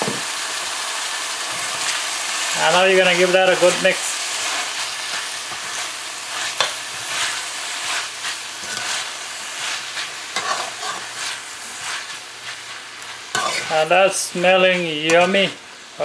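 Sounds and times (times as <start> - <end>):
vegetables sizzling in a pot: 0.0 - 16.0
metal spoon scraping a pot: 8.6 - 9.1, 10.0 - 12.2, 13.3 - 13.7.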